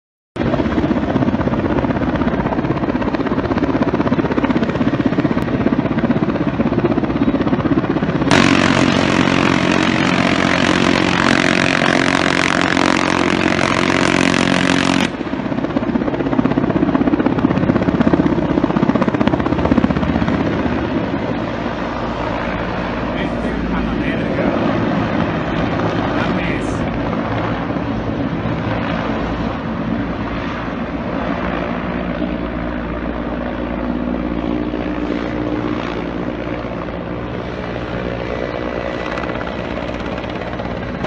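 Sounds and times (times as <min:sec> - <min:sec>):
helicopter rotor and engine: 0:00.4 - 0:41.0
minigun firing burst: 0:08.3 - 0:15.2.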